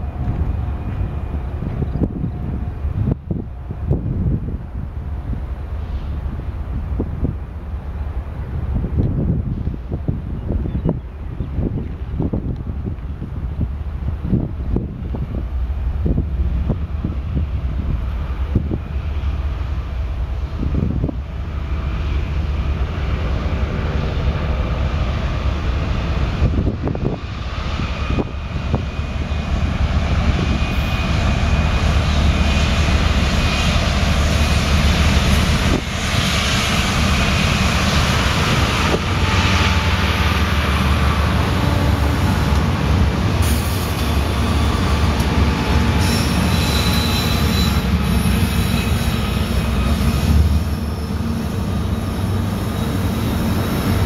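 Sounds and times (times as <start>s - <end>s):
diesel locomotives passing: 0.0s - 54.0s
train cars rolling on rails: 0.0s - 54.0s
high wheel squeals: 43.4s - 53.8s.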